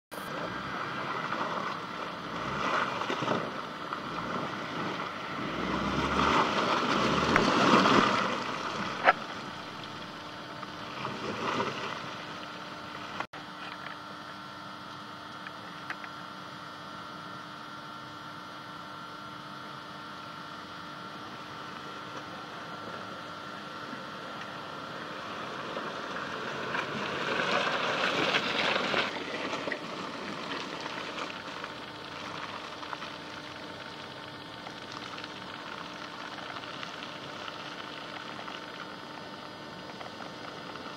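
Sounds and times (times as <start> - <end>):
tyres through mud: 0.1 - 13.9, 23.8 - 40.9
car engine hum: 0.1 - 40.9.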